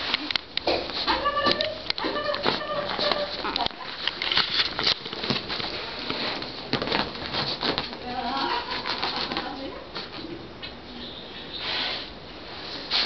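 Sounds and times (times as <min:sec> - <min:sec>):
puppy scuffling on bedspread: 0:02.1 - 0:10.2.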